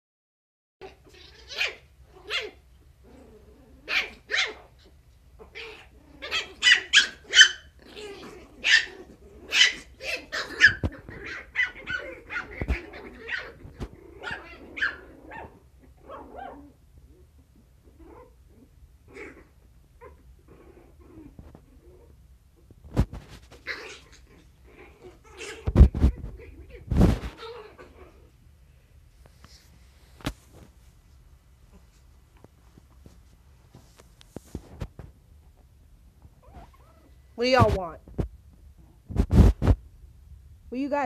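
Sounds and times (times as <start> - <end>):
puppies yapping: 0.8 - 2.6, 3.8 - 16.7, 23.5 - 28.3.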